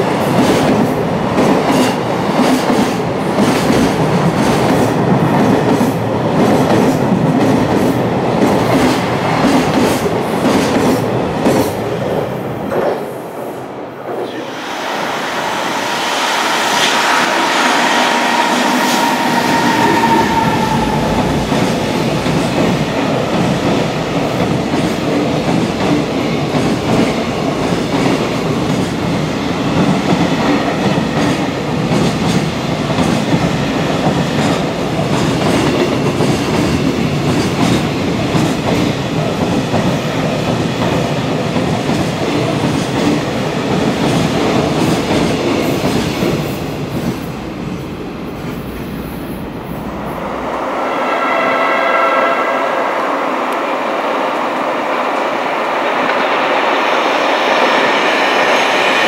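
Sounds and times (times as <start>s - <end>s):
locomotive high whine: 14.9s - 22.4s, 47.9s - 56.4s.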